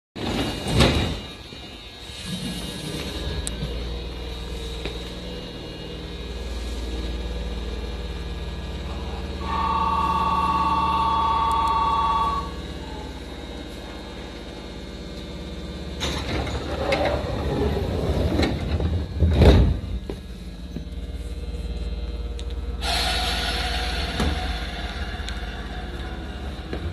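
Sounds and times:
sliding doors shutting: 0.2s - 1.4s, 16.0s - 20.2s
two-note door warning tone: 9.4s - 13.2s.

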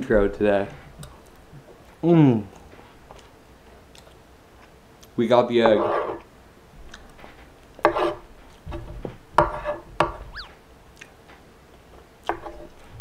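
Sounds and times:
quiet chewing: 0.7s - 5.2s, 6.8s - 7.8s, 10.4s - 12.9s.

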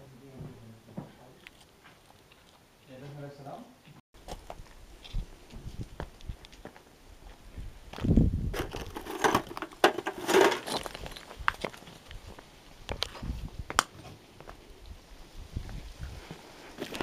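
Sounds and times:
footsteps crunching on gravel: 4.2s - 14.6s
sharp crackles and knocks: 8.5s - 14.1s.

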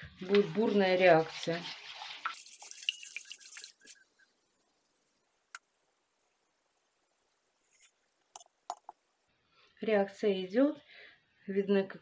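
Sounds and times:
spatula stirring batter in bowl: 0.0s - 5.3s.

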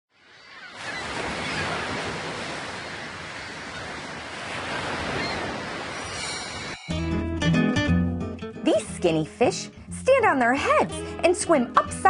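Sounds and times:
ocean waves washing: 0.1s - 7.8s.

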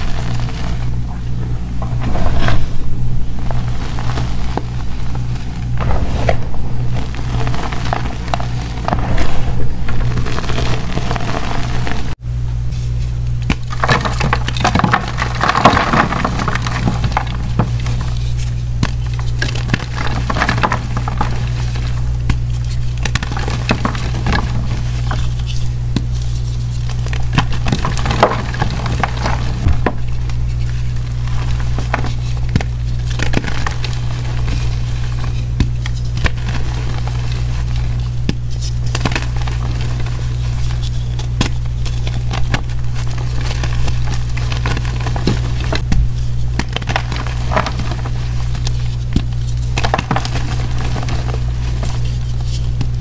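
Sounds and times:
steady low hum: 0.0s - 53.0s
chalk blocks crunching by hand: 13.4s - 53.0s.

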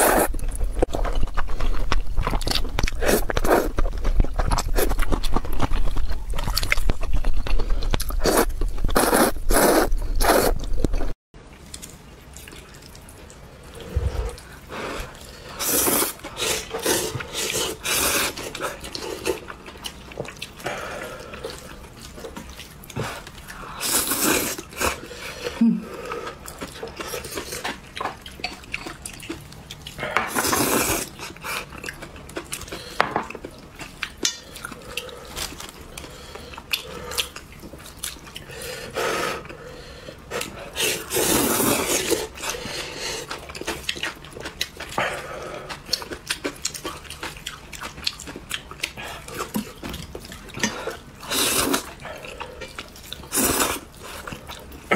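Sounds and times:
wet chewing: 0.0s - 11.0s, 39.4s - 54.9s.

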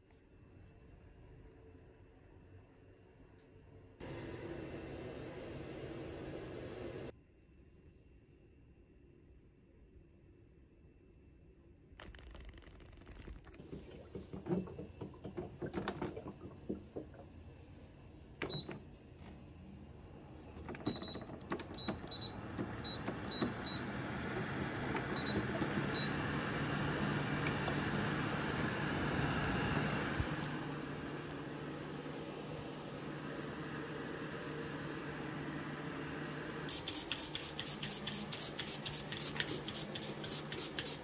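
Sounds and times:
air purifier fan rushing: 4.0s - 7.1s, 12.0s - 41.0s.

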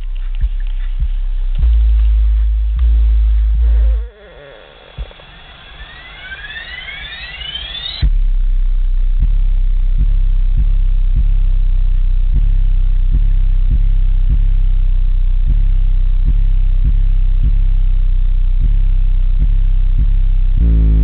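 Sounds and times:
deep bass music from subwoofers: 0.0s - 6.6s, 7.9s - 21.0s
rising synth sweeps: 4.5s - 8.1s.

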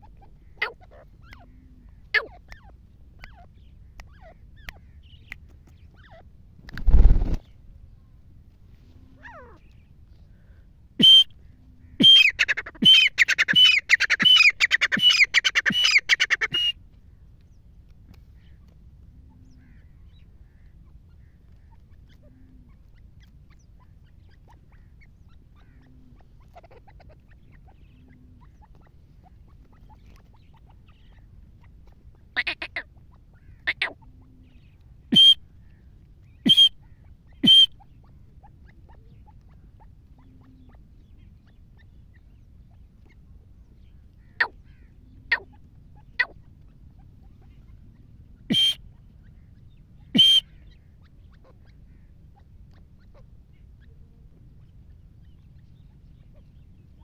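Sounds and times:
francolin calling: 10.4s - 16.8s, 32.3s - 35.8s, 36.4s - 38.0s, 48.5s - 49.4s, 50.0s - 52.1s.

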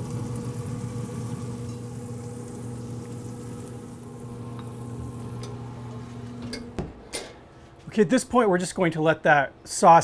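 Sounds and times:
fan humming: 0.0s - 10.0s.

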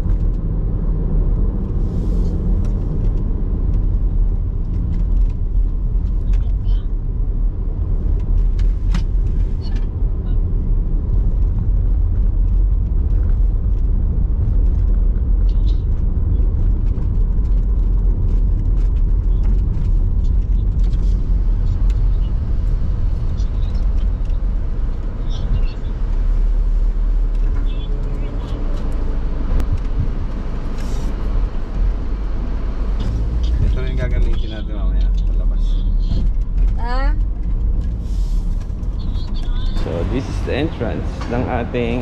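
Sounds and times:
car engine and tyres rumbling: 0.0s - 42.0s.

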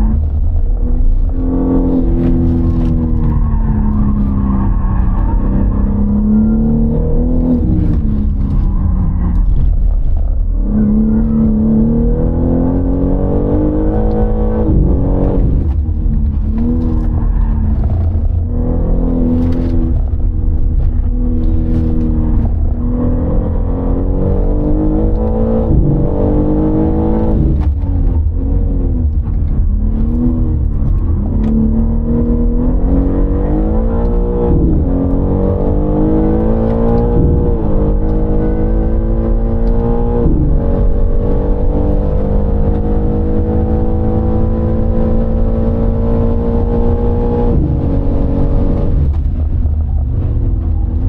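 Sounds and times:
car engine revving: 0.0s - 51.0s
low road rumble: 0.0s - 51.0s.

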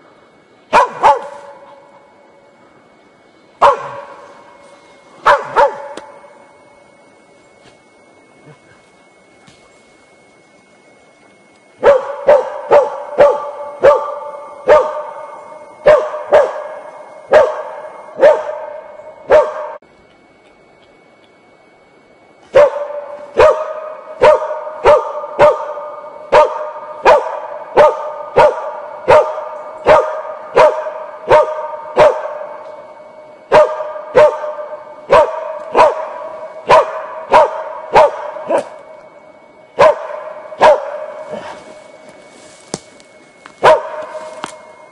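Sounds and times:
dog barking: 0.7s - 1.7s, 3.6s - 4.2s, 5.2s - 6.1s, 11.8s - 19.8s, 22.5s - 32.6s, 33.5s - 38.8s, 39.8s - 41.2s, 43.6s - 44.1s.

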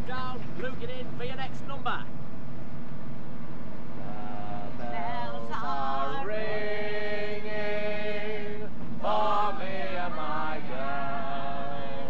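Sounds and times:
coach engine rumble: 2.4s - 11.8s
voices singing together: 4.1s - 12.0s.

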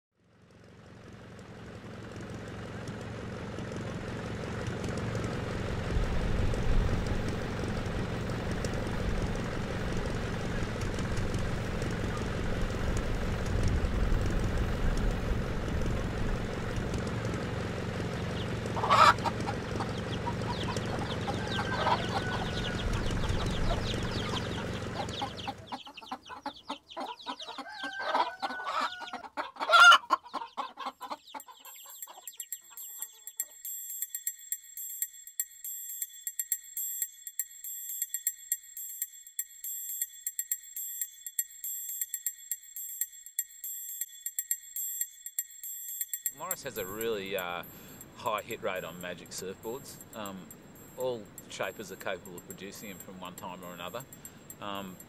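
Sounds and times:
chickens clucking: 17.9s - 33.6s
sharp chicken call: 18.8s - 24.4s, 25.0s - 33.5s.

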